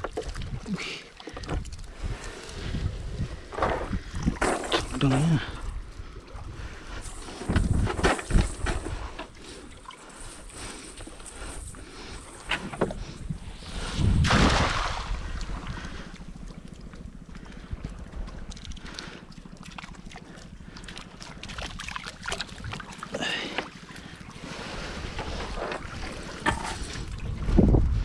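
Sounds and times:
wind on microphone: 0:01.5 - 0:04.9, 0:05.6 - 0:09.2, 0:11.4 - 0:16.2, 0:24.8 - 0:28.0
net splashing onto water: 0:14.2 - 0:15.6.

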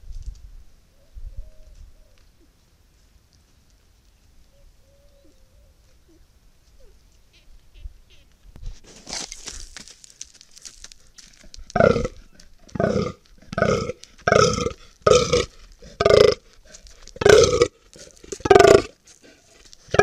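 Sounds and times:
deer buck groaning: 0:11.7 - 0:20.0.

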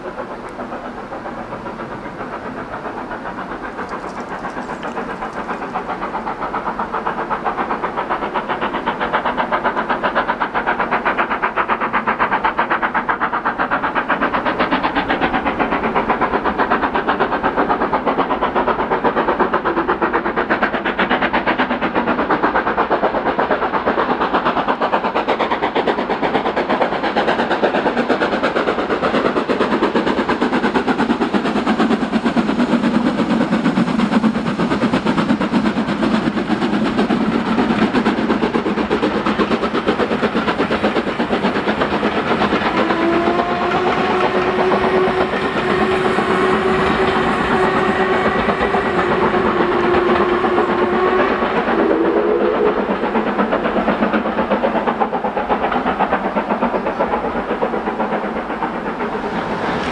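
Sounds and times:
steam locomotive exhaust beats: 0:00.0 - 0:59.9.

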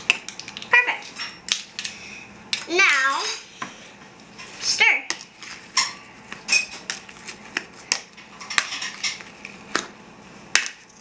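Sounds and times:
slime being stirred: 0:05.3 - 0:09.9.

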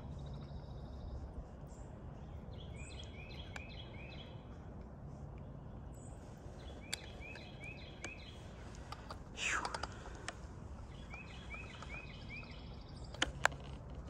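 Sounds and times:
outdoor background noise: 0:00.0 - 0:14.0
songbird singing: 0:00.0 - 0:14.0
faint clicks: 0:06.8 - 0:10.4.

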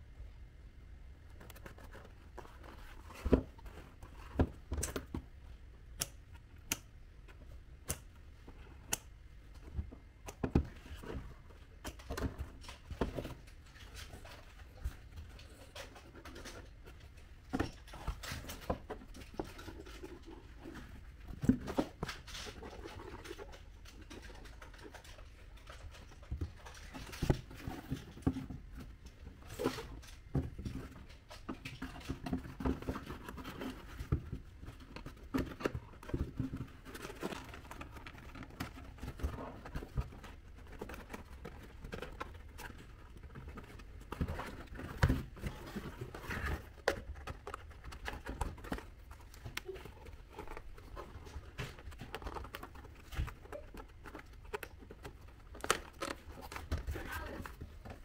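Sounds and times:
cardboard being handled: 0:01.3 - 0:05.4, 0:26.3 - 0:58.0.

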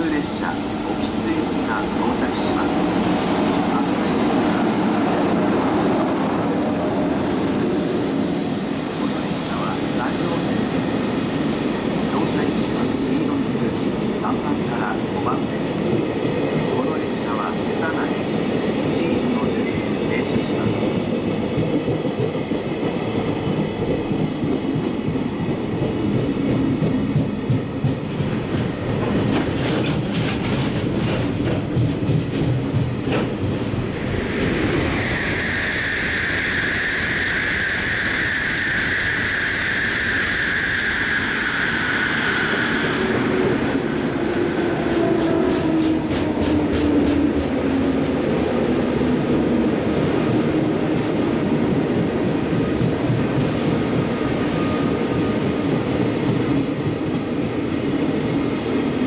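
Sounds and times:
train wheels clattering over rail joints: 0:26.5 - 0:34.6
high steady wheel squeal: 0:34.1 - 0:43.9.

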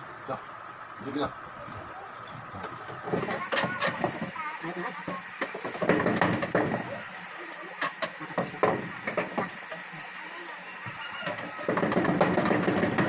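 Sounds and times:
wooden box knocking against wall: 0:05.4 - 0:07.0, 0:10.9 - 0:13.0.

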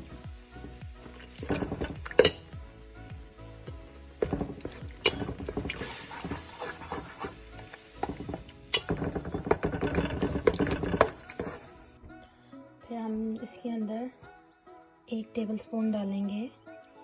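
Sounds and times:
spatula scraping a steel pan: 0:01.5 - 0:02.4, 0:04.2 - 0:11.8.

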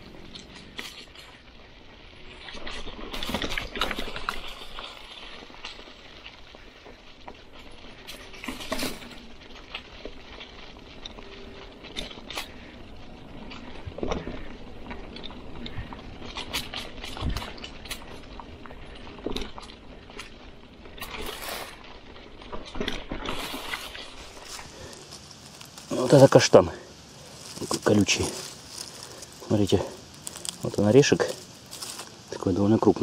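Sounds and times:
bike jolting over bumps: 0:00.0 - 0:32.2
bike tyres crackling over leaves: 0:00.0 - 0:33.0.

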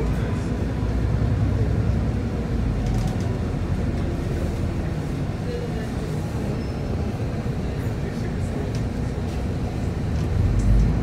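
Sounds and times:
bus engine rumble and road noise: 0:00.0 - 0:11.0.

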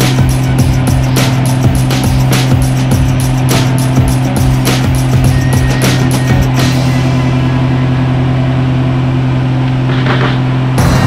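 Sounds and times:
loud rhythmic beating sound: 0:00.0 - 0:06.9, 0:09.9 - 0:11.0
aircraft engine and propeller droning: 0:00.0 - 0:11.0.

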